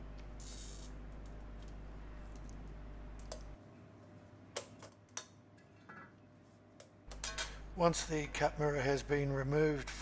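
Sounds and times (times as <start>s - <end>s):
steady low hum: 0.0s - 4.8s, 6.2s - 10.0s.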